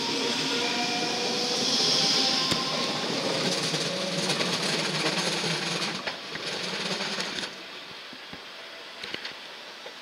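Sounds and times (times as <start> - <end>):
train rolling rumble: 0.0 - 8.2
wheels clicking over rail joints: 3.4 - 7.6.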